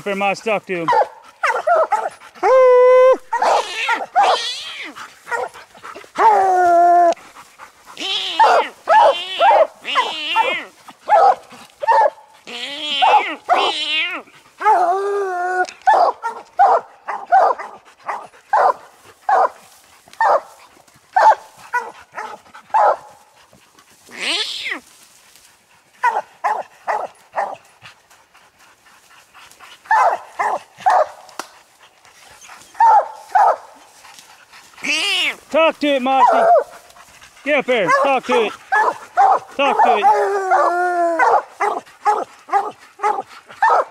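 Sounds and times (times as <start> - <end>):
hounds barking: 0.8 - 2.6, 3.3 - 6.4, 7.9 - 13.8, 15.8 - 23.2, 26.0 - 27.7, 29.8 - 31.4, 32.6 - 43.9
hound howling: 0.9 - 5.5, 6.2 - 7.3, 8.0 - 17.6, 36.2 - 36.7, 37.8 - 43.9.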